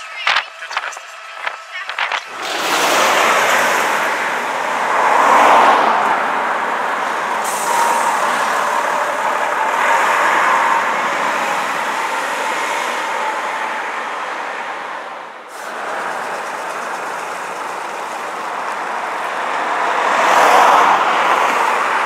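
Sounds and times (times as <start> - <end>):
diesel coach passing: 0.0 - 22.0
passing cars: 0.0 - 22.0.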